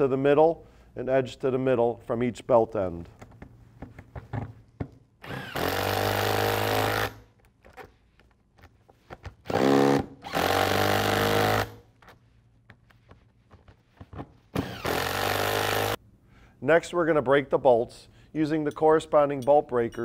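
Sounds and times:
impact wrench running nuts: 5.2s - 7.5s, 9.3s - 11.8s, 14.5s - 16.0s.

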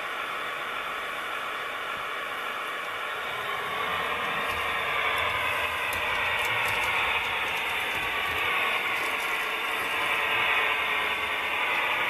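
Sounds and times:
model train motor whirring: 2.8s - 12.0s.

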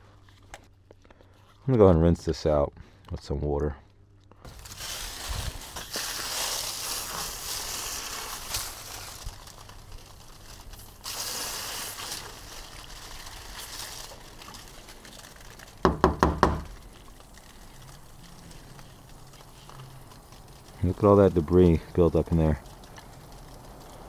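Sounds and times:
hose spraying water: 4.5s - 24.0s
sharp knocks: 15.8s - 16.7s.

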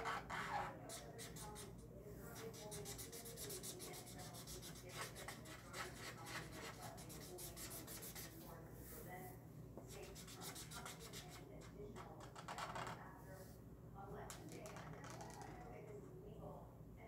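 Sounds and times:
marker scratching on paper: 0.0s - 9.0s, 9.9s - 12.7s.

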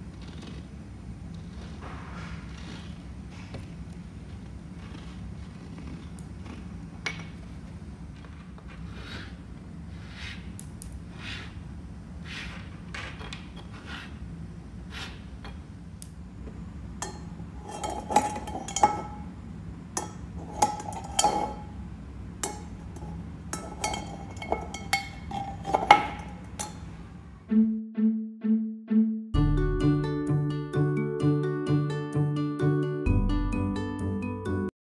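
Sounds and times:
pencil strokes on wooden tabletop: 8.7s - 11.6s, 12.2s - 12.7s, 13.6s - 14.2s, 14.9s - 15.4s
metal balls clacking against tin: 17.0s - 19.3s, 20.0s - 21.7s, 22.4s - 26.9s.

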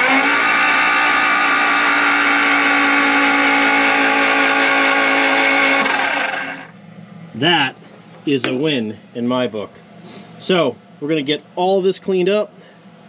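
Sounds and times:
starter motor cranking engine: 0.0s - 6.7s.

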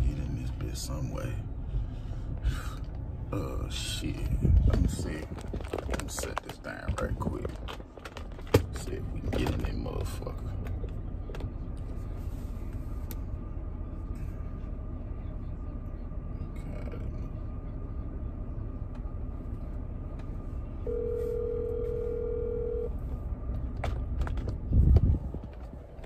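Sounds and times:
low rumble: 0.0s - 26.0s
telephone ringback tone: 20.9s - 22.9s.

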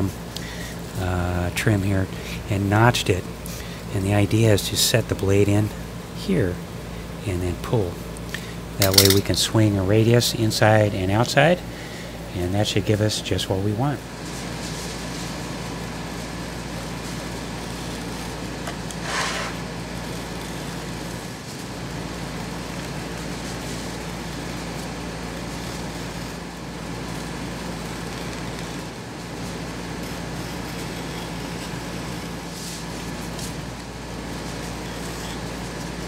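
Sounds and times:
low mechanical hum with hiss: 0.0s - 36.0s
brief scrape: 19.0s - 19.6s.

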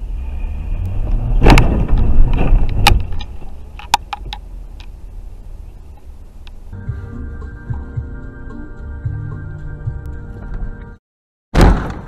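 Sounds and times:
low road rumble: 0.0s - 11.0s
car collision crunching impact: 1.2s - 3.4s.

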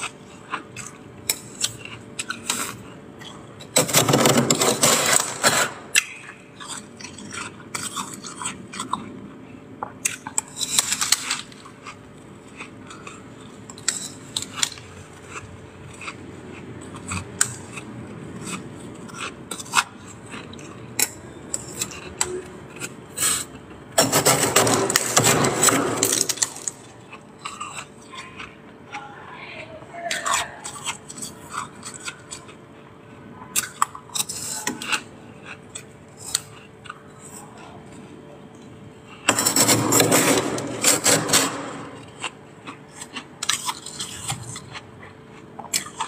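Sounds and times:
metal spoon scraping frost: 0.0s - 9.1s, 10.1s - 28.3s, 33.5s - 35.1s, 39.1s - 44.7s
frost being chewed: 0.0s - 24.0s, 25.0s - 29.2s, 30.1s - 39.3s, 41.5s - 46.0s.

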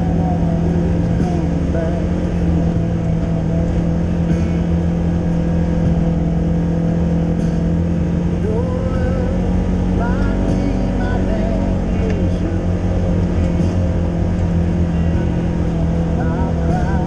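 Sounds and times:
off-road vehicle engine droning: 0.0s - 17.0s.

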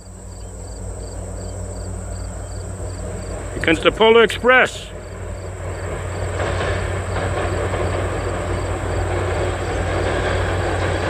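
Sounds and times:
train rumbling over bridge: 0.0s - 11.0s.

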